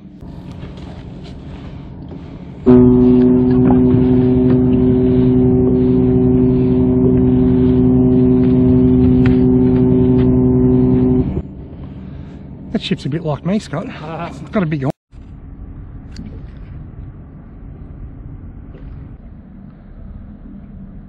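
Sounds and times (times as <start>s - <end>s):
ship's horn blast: 1.4s - 11.4s.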